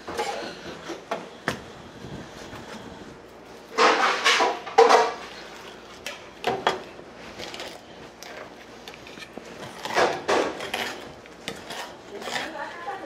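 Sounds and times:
knife scraping along fish bones: 7.3s - 13.0s.

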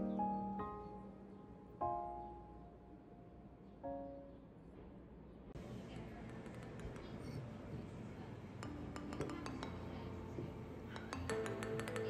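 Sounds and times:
background music: 0.0s - 4.4s, 8.2s - 12.0s.

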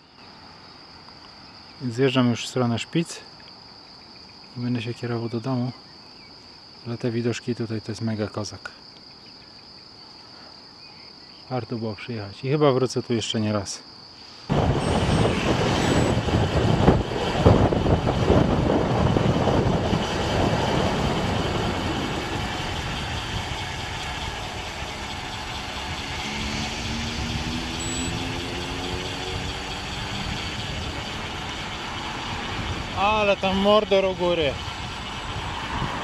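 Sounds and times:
vehicle engine accelerating: 14.5s - 36.0s
wind buffeting microphone: 14.5s - 36.0s.

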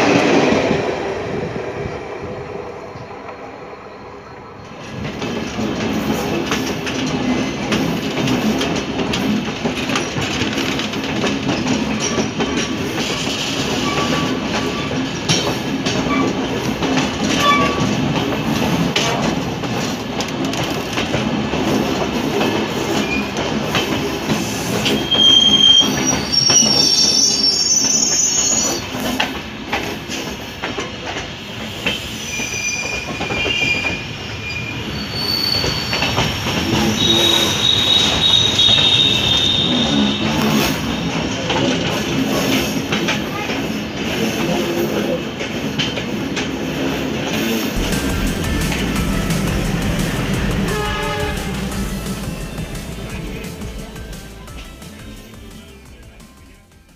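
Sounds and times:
train wheels rumbling and clattering: 0.0s - 3.7s, 4.5s - 56.9s
metal wheel squeals: 24.8s - 28.9s, 32.3s - 40.2s.

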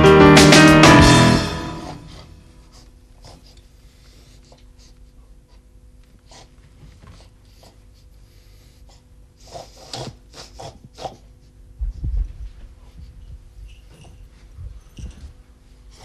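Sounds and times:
sleeping person snorting: 9.4s - 11.4s.

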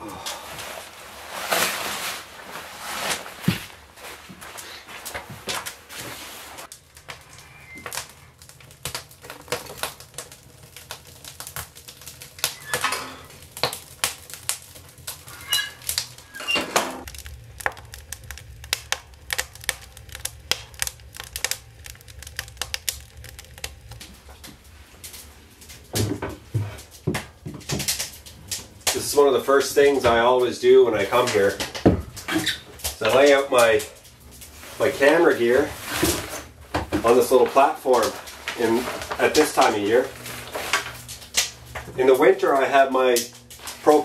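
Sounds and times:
wood fire crackling: 0.0s - 44.0s.

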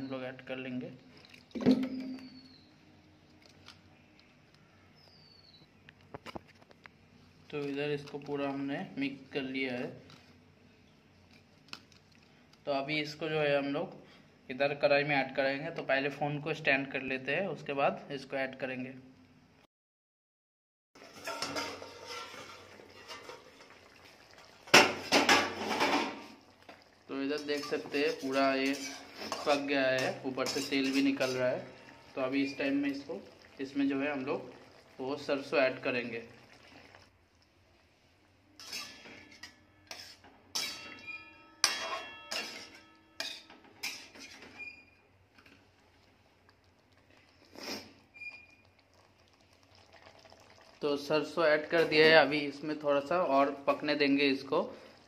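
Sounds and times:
metal kitchenware clinking: 21.0s - 23.7s, 24.7s - 26.3s, 27.2s - 31.6s, 38.6s - 44.7s.

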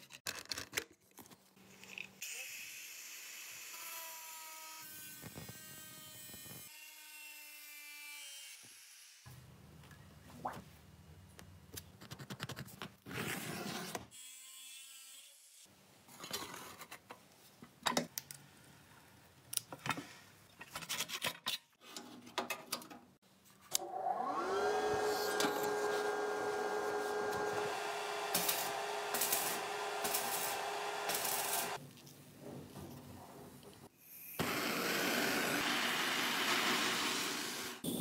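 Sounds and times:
electric motor whine: 23.8s - 31.8s.

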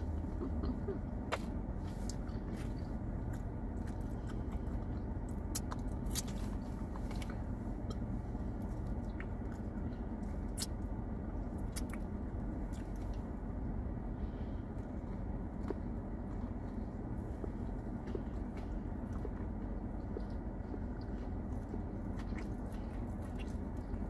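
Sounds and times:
chewing sandwich: 0.0s - 13.9s, 14.7s - 24.0s
air conditioning hum: 0.0s - 24.0s
wet mouth clicks and smacks: 5.3s - 6.4s, 10.5s - 10.8s, 11.6s - 12.1s.

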